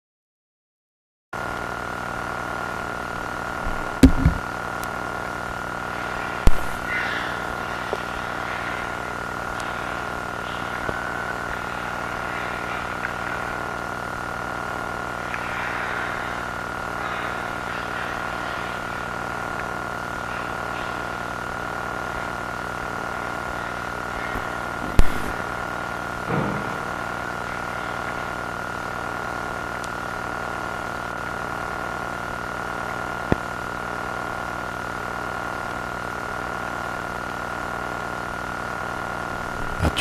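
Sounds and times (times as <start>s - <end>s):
low hum: 2.3s - 30.1s
electronic drone: 2.6s - 29.8s
dull thumps: 3.6s - 4.4s.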